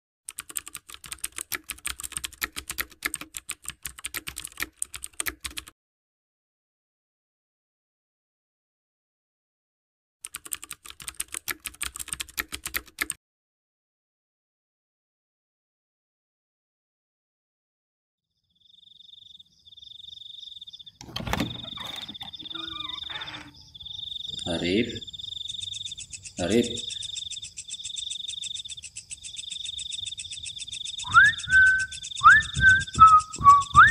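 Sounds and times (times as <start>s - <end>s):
keyboard typing: 0.3s - 5.7s, 10.2s - 13.2s, 31.5s - 33.9s
crickets chirping: 18.4s - 33.9s
creaking and scraping: 21.0s - 23.7s.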